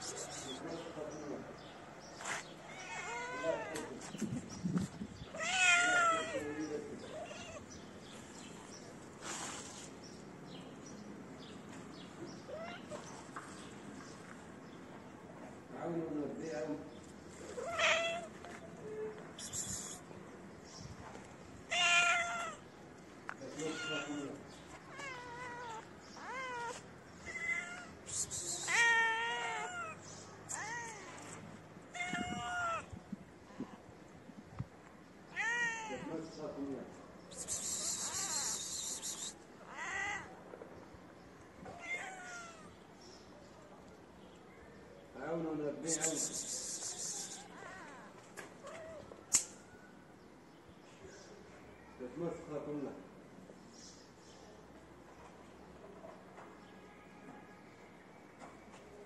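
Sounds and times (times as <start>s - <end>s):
cat meowing: 2.6s - 3.9s, 5.3s - 7.7s, 17.6s - 18.4s, 21.7s - 22.6s, 23.6s - 24.3s, 24.9s - 28.0s, 28.6s - 31.2s, 31.9s - 32.9s, 35.3s - 36.1s, 41.7s - 42.7s.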